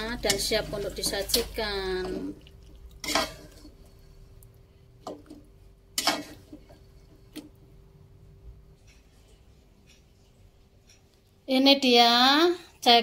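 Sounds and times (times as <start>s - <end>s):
metal spatula scraping wok: 0.0s - 2.3s, 3.0s - 4.1s, 5.9s - 7.3s
faint hum: 0.0s - 13.0s.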